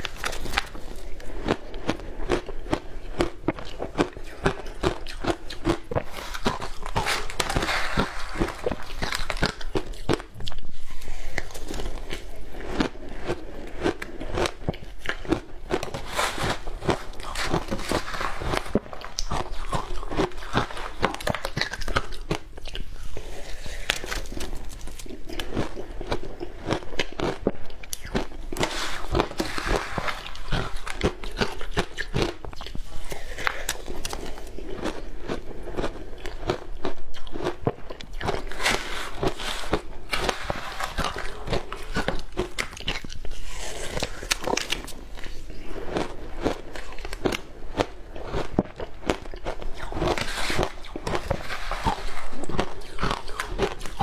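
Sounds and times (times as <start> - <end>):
crunching and chewing ice: 0.0 - 54.0.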